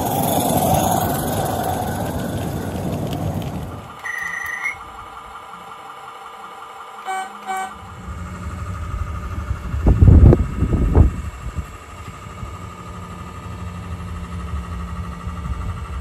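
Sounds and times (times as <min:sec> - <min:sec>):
model train wheels and motors rumbling: 0:00.0 - 0:16.0
model locomotive horn toots: 0:04.0 - 0:04.9, 0:06.9 - 0:08.3.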